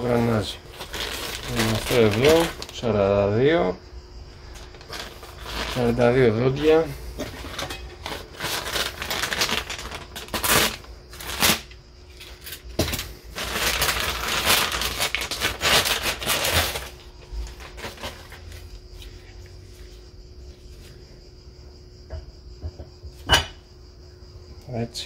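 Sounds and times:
plastic bag crinkling: 0.0 - 3.0, 4.4 - 18.7.

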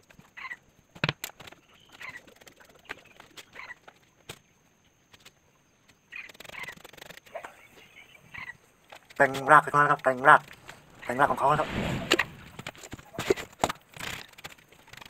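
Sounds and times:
faint animal calls: 1.6 - 4.0, 6.0 - 8.8.

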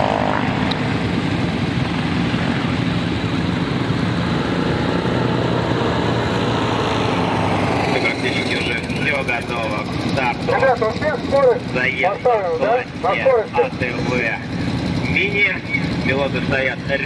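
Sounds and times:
quad bike engines idling: 7.9 - 17.0.

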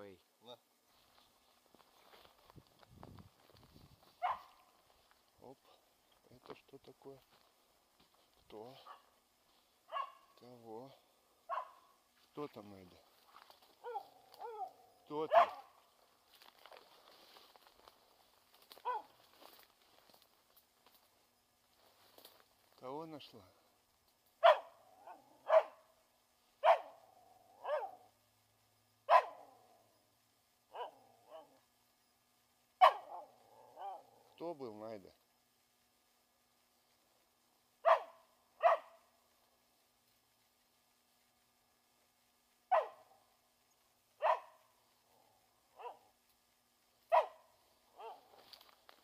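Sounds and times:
dog barking: 4.2 - 4.6, 8.8 - 9.1, 9.9 - 10.3, 11.5 - 11.9, 13.8 - 15.8, 18.8 - 19.2, 24.4 - 25.9, 26.6 - 27.0, 27.6 - 28.1, 29.1 - 29.7, 30.7 - 31.6, 32.8 - 34.2, 37.8 - 39.0, 42.7 - 43.1, 44.2 - 44.6, 45.7 - 46.1, 47.1 - 48.4.

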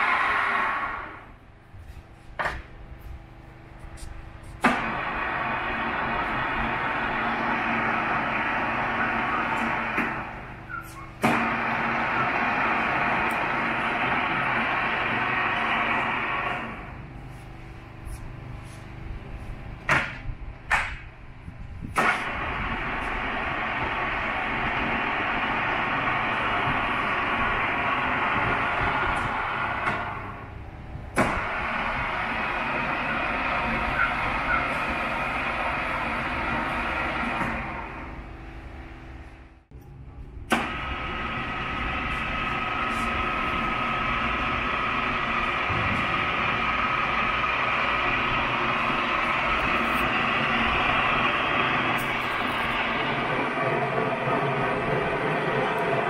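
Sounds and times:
drill press running: 0.0 - 1.6, 2.4 - 21.1, 21.9 - 39.6, 40.5 - 56.0
loud metal clunks: 4.6 - 7.0.

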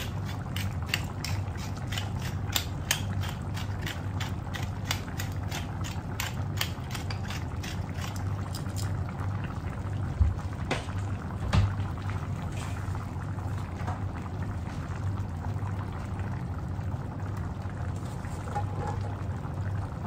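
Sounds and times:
pepper mill grinding: 0.0 - 8.9.

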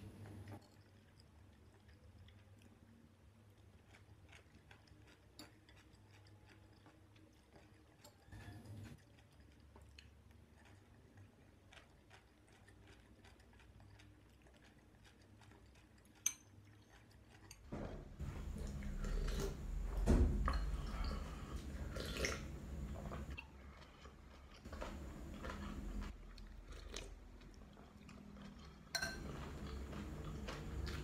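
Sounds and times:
chewing: 0.0 - 31.0
slurping noodles: 18.2 - 19.7, 20.7 - 27.2
spoon clinking on glass bowl: 29.0 - 29.3.

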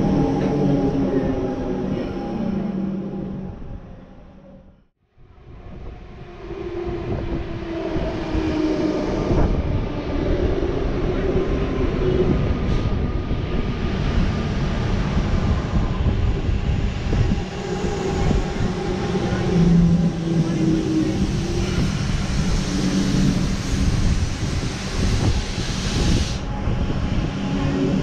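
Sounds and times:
train wheels rumbling on track: 7.0 - 28.0.

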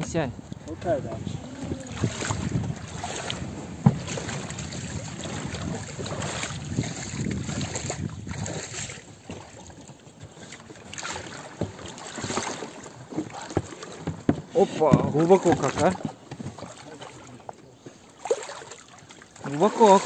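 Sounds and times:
water sloshing around boat hull: 0.0 - 20.0
knocks against boat hull: 3.8 - 4.3, 13.1 - 16.6.

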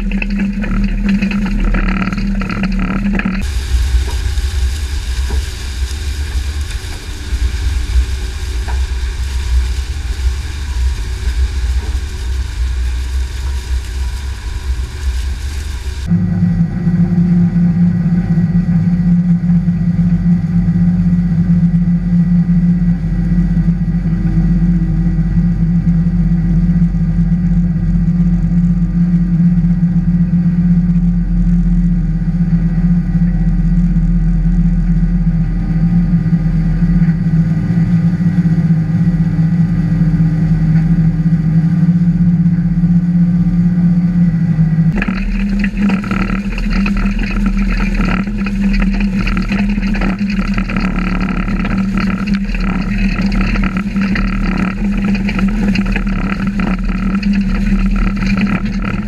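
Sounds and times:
farm machine rough rumble: 0.0 - 23.2, 35.4 - 59.0
low machine hum: 0.0 - 59.0.

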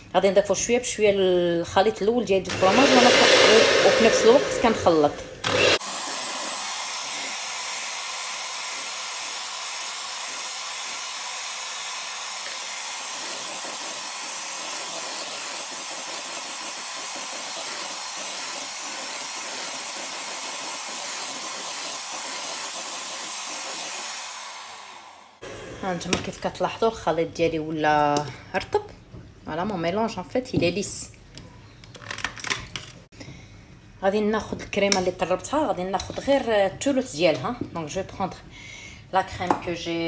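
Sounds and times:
electric hand mixer whisking: 2.5 - 26.1.

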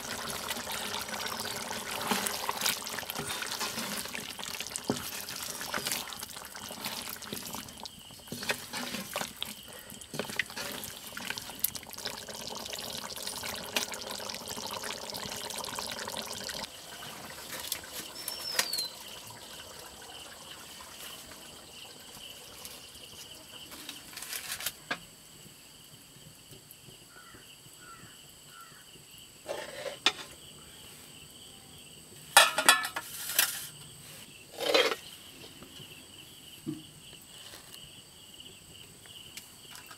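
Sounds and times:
wooden spatula stirring: 0.0 - 13.8
gravy simmering and sizzling: 0.0 - 24.9
metal pans and ladle clattering: 8.2 - 11.3, 32.3 - 33.8, 34.6 - 35.1.

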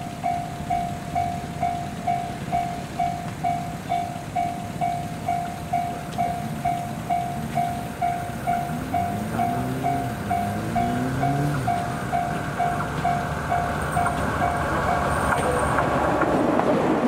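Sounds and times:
level-crossing warning bell ringing: 0.0 - 16.2
electric train rumble: 0.0 - 17.0.

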